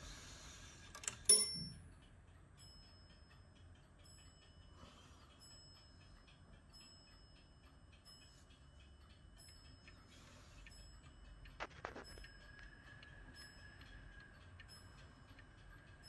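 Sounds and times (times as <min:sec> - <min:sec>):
clock ticking faintly: 0:00.0 - 0:16.0
bell ringing: 0:01.3 - 0:01.8
hammer striking clock bell: 0:01.3 - 0:01.9.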